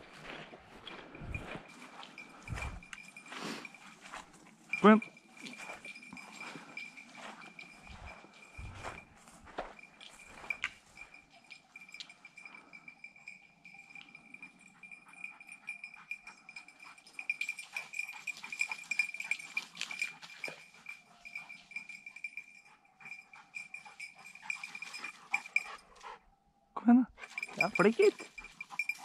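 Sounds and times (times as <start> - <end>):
footsteps: 0.0 - 11.2
dog collar bell jingling: 0.0 - 26.2, 27.2 - 29.0.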